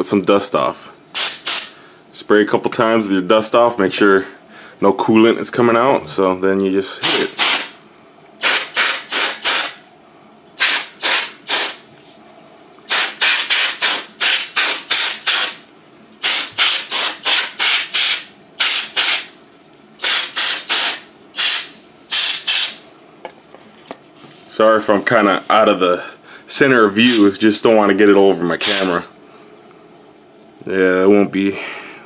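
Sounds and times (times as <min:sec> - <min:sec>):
compressed air spray hiss: 0:01.2 - 0:01.8, 0:07.0 - 0:07.7, 0:08.4 - 0:09.8, 0:10.6 - 0:11.8, 0:12.9 - 0:15.6, 0:16.2 - 0:19.3, 0:20.0 - 0:22.8.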